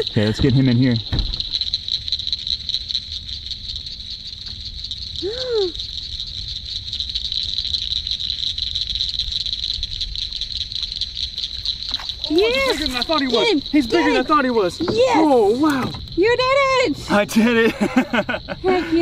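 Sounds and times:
night chorus of calling animals: 0.0s - 19.0s.

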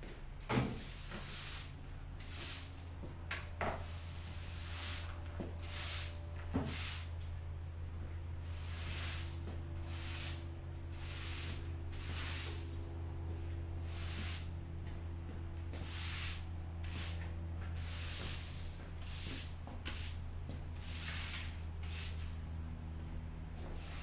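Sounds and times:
steady low hum: 0.0s - 24.0s
push broom sweeping concrete: 0.5s - 7.3s, 8.4s - 22.5s, 23.6s - 24.0s.

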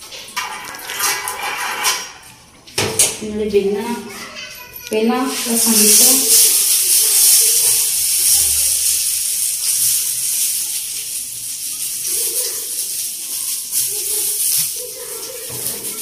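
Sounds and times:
eggplant sizzling on hot pan: 4.6s - 16.0s.

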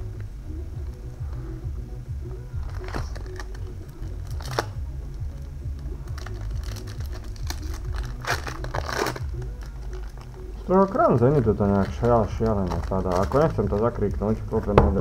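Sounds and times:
foil wrapper crinkling: 2.6s - 4.8s, 5.7s - 15.0s.

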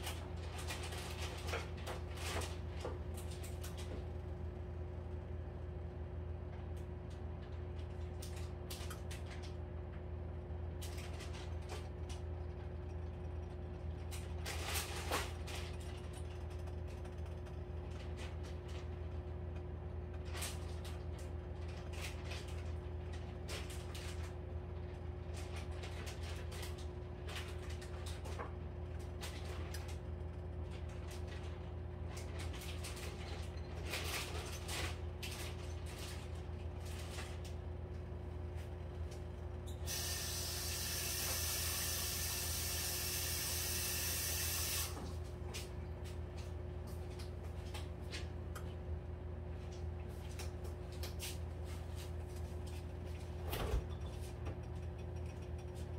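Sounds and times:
steady electrical hum: 0.0s - 55.9s.

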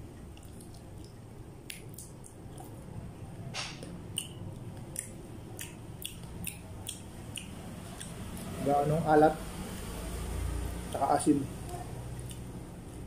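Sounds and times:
person chewing food: 0.1s - 3.0s, 3.8s - 8.6s, 11.6s - 13.0s.

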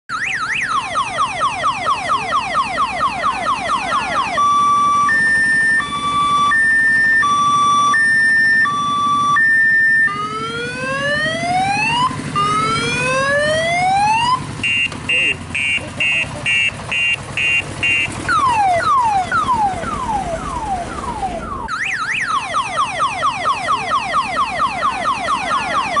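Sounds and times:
electronic siren: 0.1s - 26.0s.

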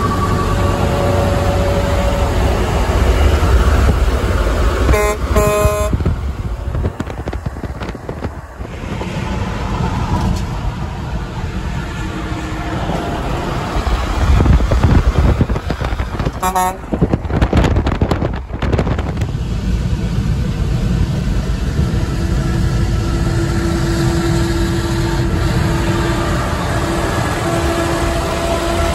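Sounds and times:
highway road noise: 0.0s - 28.9s
air horn blasts: 4.9s - 6.2s, 16.4s - 17.0s, 23.4s - 28.9s.

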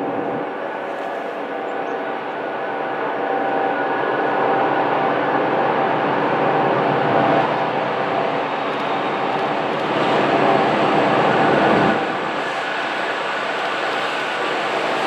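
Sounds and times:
diesel locomotive engine at high power: 0.0s - 15.0s.

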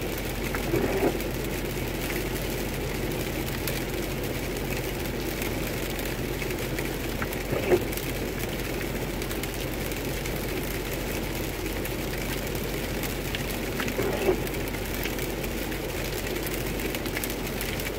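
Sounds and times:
low engine hum: 0.0s - 17.9s
tyre hiss on wet road: 5.3s - 9.7s.

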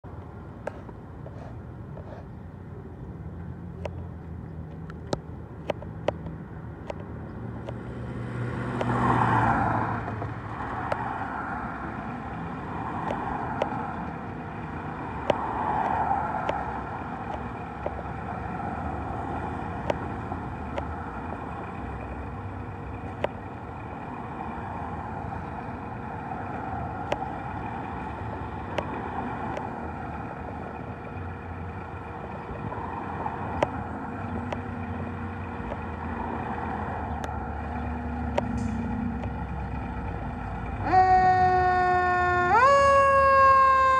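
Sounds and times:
diesel engine idling: 9.6s - 43.9s.

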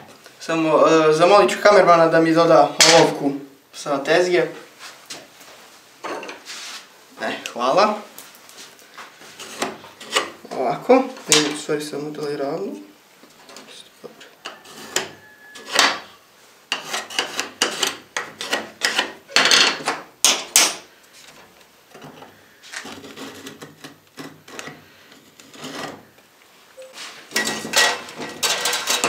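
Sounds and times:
tools and screws clattering on wood: 16.7s - 26.0s, 27.3s - 29.0s.

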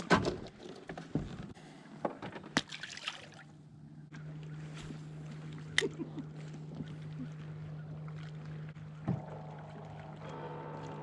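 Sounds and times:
boat motor humming: 3.5s - 11.0s.

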